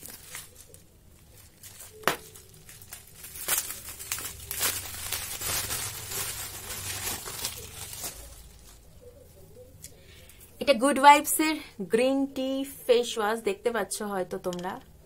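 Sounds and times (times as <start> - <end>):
plastic wrapping crinkling and tearing: 0.0 - 8.9.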